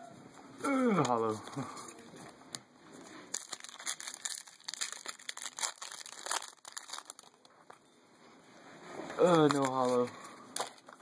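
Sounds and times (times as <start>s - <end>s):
foil wrappers crinkling: 3.0s - 7.8s, 9.2s - 11.0s.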